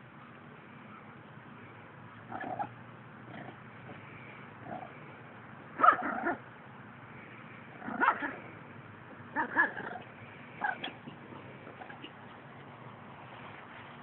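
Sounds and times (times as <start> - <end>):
puppy barking and yipping: 5.8 - 6.4, 7.8 - 8.5, 9.3 - 12.4.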